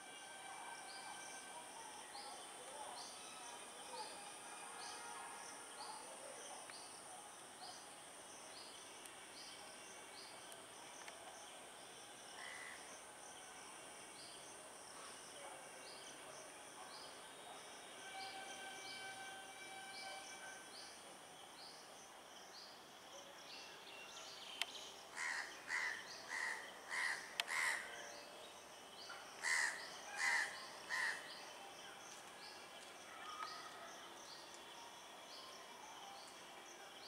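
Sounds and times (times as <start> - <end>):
high insect drone: 0.0 - 23.0.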